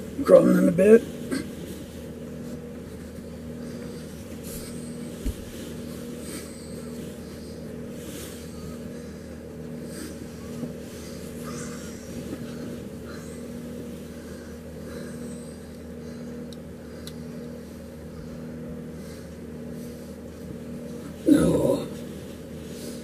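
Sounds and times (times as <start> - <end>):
steady low hum: 0.0 - 23.0
bedding rustling: 1.0 - 16.4.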